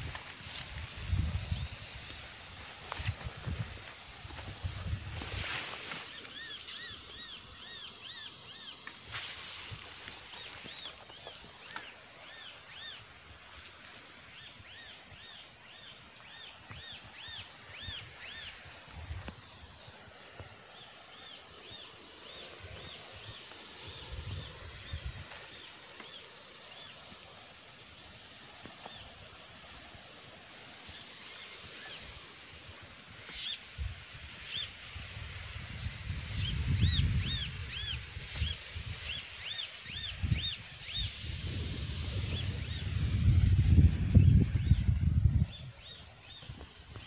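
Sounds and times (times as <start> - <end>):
small bird chirping: 6.0 - 8.9, 36.3 - 41.2.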